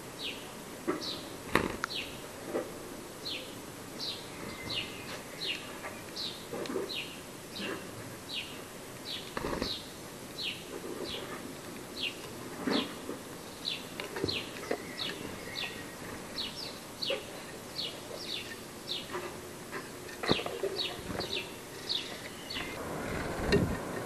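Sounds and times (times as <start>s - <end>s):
sparrow chirping: 13.6s - 19.4s, 20.0s - 22.8s.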